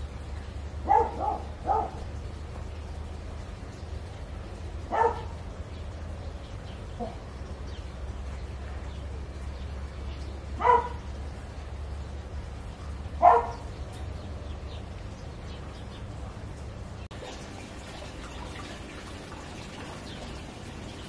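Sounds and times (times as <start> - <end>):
dog barking: 0.8 - 2.0, 4.9 - 5.4, 10.6 - 11.0, 13.2 - 13.7.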